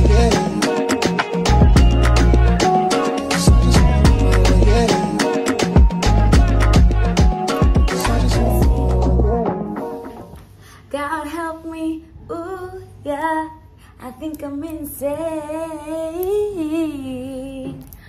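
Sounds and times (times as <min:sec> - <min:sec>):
woman singing: 0:10.9 - 0:18.0.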